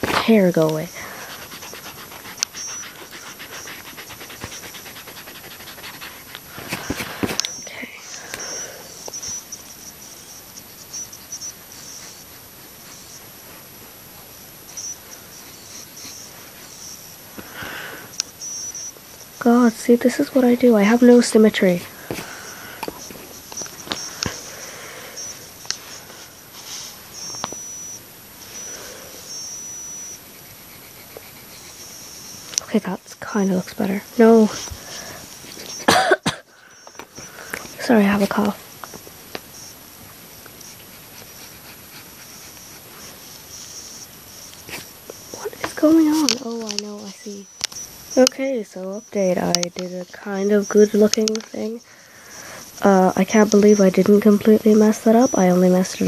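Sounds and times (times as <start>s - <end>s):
pencil scratching on paper: 0.0s - 34.8s, 37.7s - 38.6s, 40.4s - 47.5s, 48.1s - 51.8s
thin high tone: 0.0s - 56.0s
eraser scrubbing on paper: 0.1s - 7.5s, 29.3s - 35.8s, 40.6s - 47.4s.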